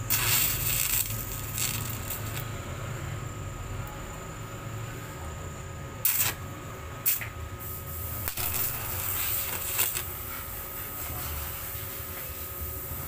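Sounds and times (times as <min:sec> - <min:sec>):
welding arc hissing: 0:00.0 - 0:02.6, 0:06.0 - 0:06.4, 0:07.0 - 0:13.0.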